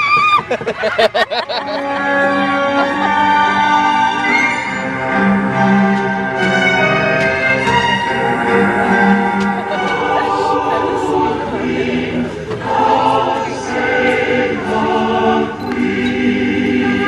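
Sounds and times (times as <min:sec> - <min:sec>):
choir singing held notes: 0:00.9 - 0:17.0.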